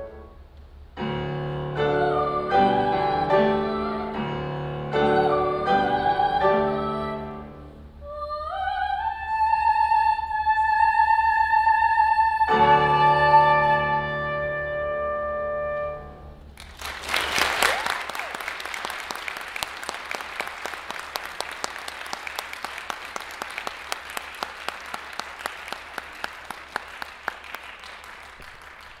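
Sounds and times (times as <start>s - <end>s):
person singing with piano: 1.7s - 15.0s
audience applause: 16.6s - 29.0s.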